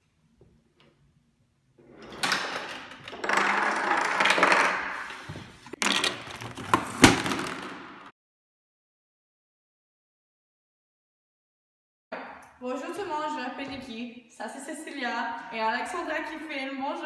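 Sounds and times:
toy car rolling down ramp: 1.9 - 5.2
pieces rolling and clattering: 1.9 - 8.1.

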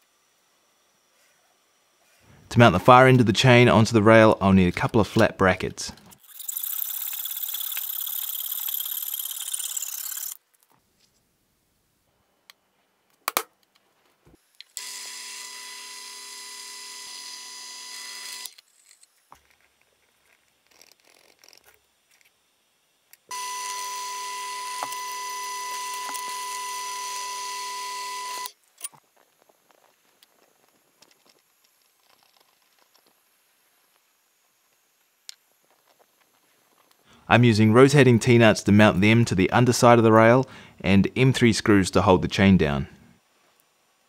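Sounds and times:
electric drill whining: 6.2 - 10.4, 14.8 - 18.6, 23.3 - 28.5.

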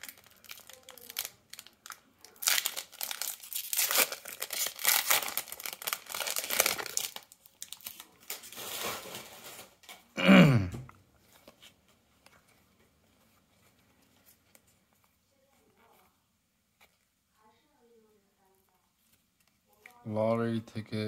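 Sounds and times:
plastic wrapper crinkling and tearing: 0.0 - 10.1, 18.9 - 20.1.

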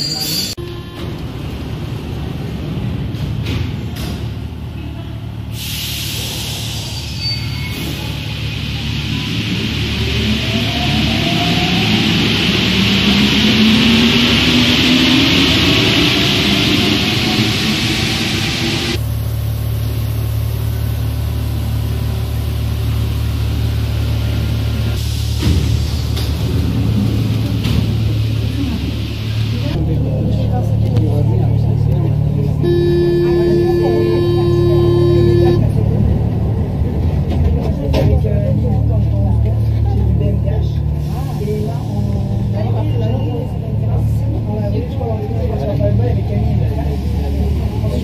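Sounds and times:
train doors closing: 0.0 - 19.0
train low rumble: 0.0 - 48.0
air brake hisses: 5.5 - 8.2.

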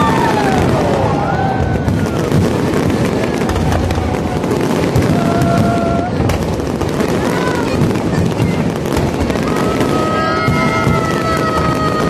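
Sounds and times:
fireworks booms: 0.0 - 12.0
fireworks crackling: 0.0 - 12.0.

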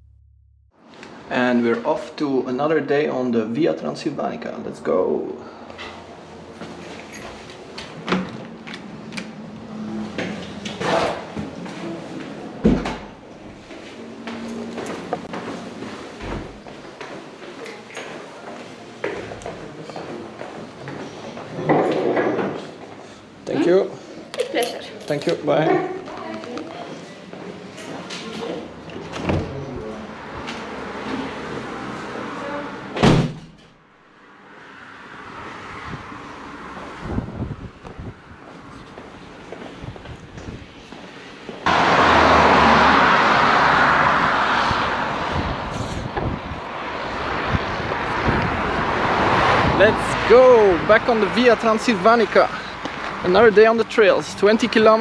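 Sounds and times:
footsteps on tiled stairs: 13.3 - 21.7, 38.4 - 41.7
glass-panelled door banging shut: 33.0 - 33.6.

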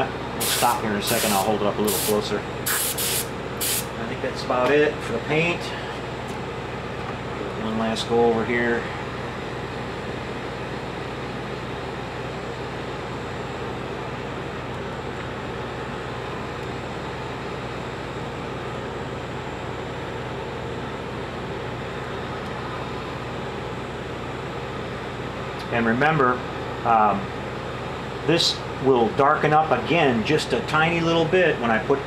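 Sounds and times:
heat gun fan blowing: 0.0 - 32.0.

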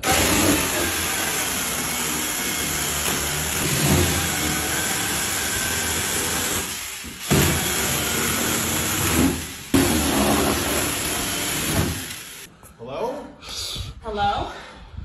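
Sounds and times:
cordless power tool running: 0.0 - 12.5.

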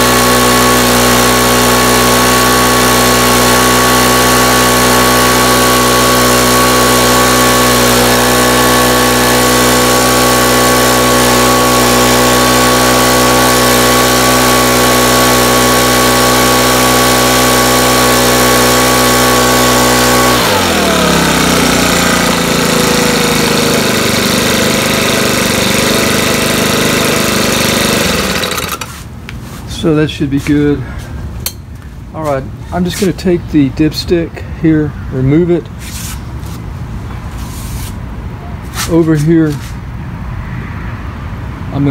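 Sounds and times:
leaf blower engine running: 0.0 - 31.0.

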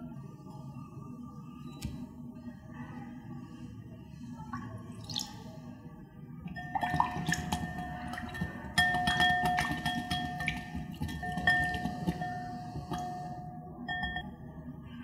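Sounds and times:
milk pouring: 4.6 - 5.5, 6.5 - 13.3
whisk clicking against glass bowl: 6.6 - 13.3.

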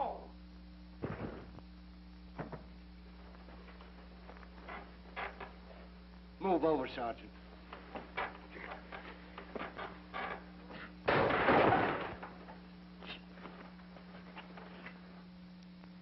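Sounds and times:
steady low hum: 0.0 - 16.0
small knocks and rustles: 2.4 - 6.0, 7.6 - 12.6, 13.4 - 15.3.

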